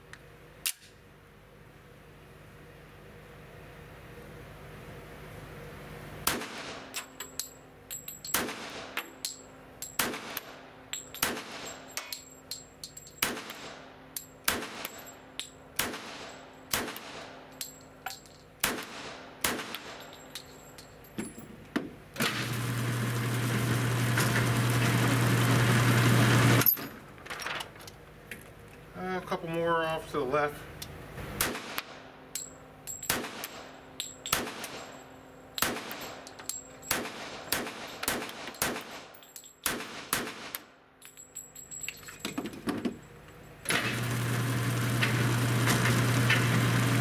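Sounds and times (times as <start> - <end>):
motorized target carrier humming: 22.0 - 27.3, 43.0 - 47.0.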